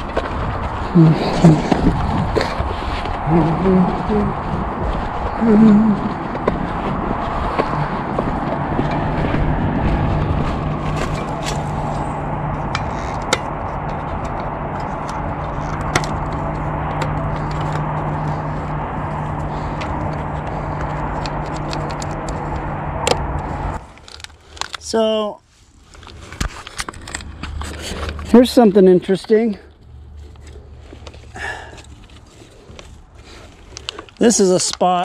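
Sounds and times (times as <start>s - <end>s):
rushing noise: 0.0s - 24.7s
vehicle engine running: 0.0s - 25.0s, 25.8s - 34.8s.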